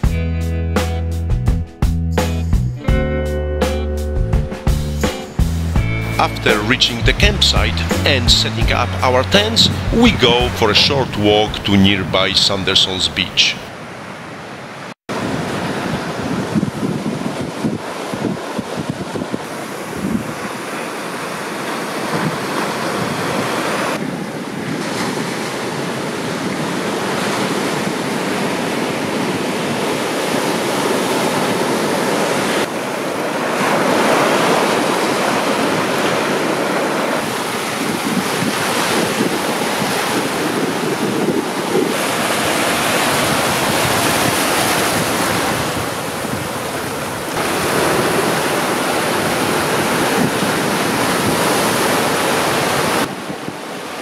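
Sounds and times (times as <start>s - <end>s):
ocean surf breaking on rocks: 6.2s - 54.0s
wind buffeting microphone: 15.1s - 20.7s, 37.2s - 53.8s.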